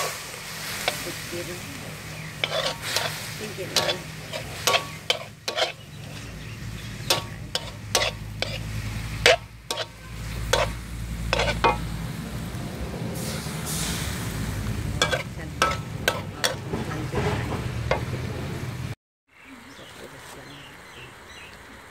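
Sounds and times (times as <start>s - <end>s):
metal spatula scraping wok: 0.0s - 11.9s, 13.2s - 18.2s
pork sizzling in oil: 0.0s - 16.6s.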